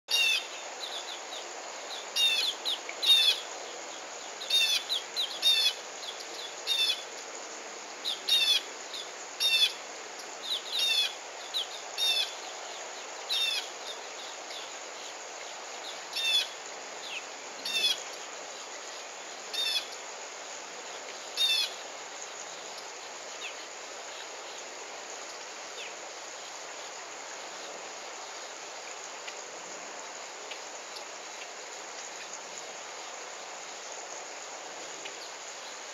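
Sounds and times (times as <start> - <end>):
insects hissing: 0.1 - 35.9.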